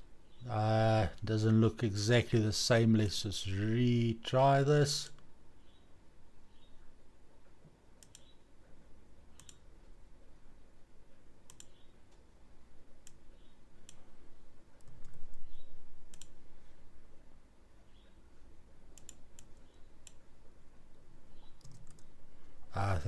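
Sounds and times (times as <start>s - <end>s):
faint room noise: 0.0s - 23.0s
mouse button clicking: 8.0s - 8.3s.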